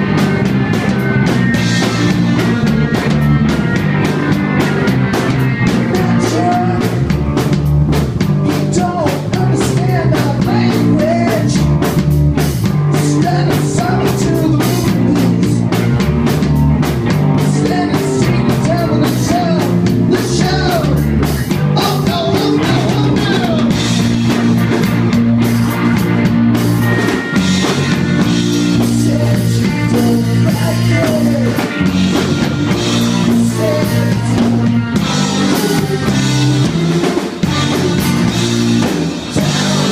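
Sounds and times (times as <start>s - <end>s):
bass guitar: 0.0s - 39.9s
drum kit beat: 0.0s - 39.9s
electric guitar: 0.0s - 39.9s
man singing: 5.8s - 7.1s, 8.5s - 11.8s, 12.9s - 15.8s, 17.4s - 24.2s, 28.5s - 31.8s, 32.7s - 38.5s, 39.2s - 39.9s.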